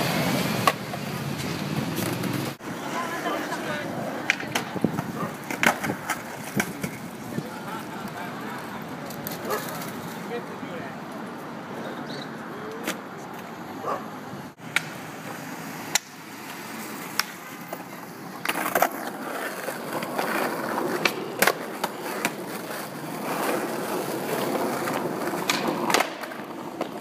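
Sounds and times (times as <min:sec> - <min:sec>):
skateboard wheels rolling on asphalt: 0:00.0 - 0:27.0
skateboard clacks: 0:00.5 - 0:02.6, 0:03.4 - 0:10.2, 0:15.9 - 0:27.0.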